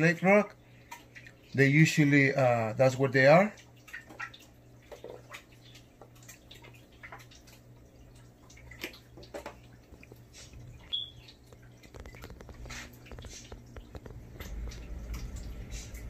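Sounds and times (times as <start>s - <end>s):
aquarium water trickling: 0.0s - 16.0s
steady low hum: 0.0s - 16.0s
small drip-like ticks: 0.5s - 1.6s, 3.5s - 16.0s.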